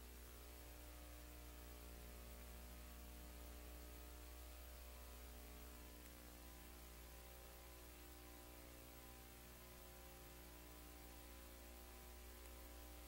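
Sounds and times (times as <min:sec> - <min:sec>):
faint mains hum with hiss: 0:00.0 - 0:13.0.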